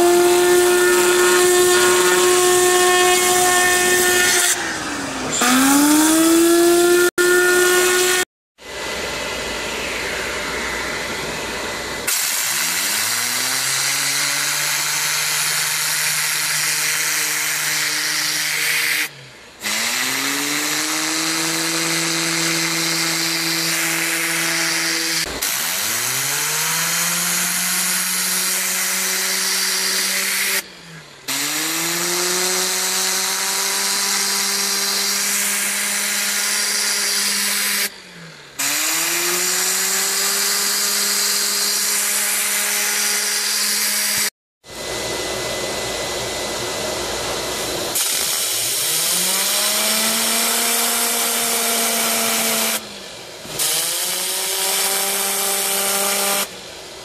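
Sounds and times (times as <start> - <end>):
machine whine: 0.0 - 15.5.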